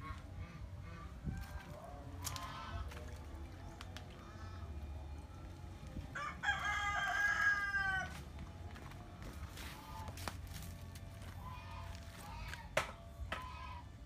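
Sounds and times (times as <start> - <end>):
rooster crowing: 6.2 - 8.2.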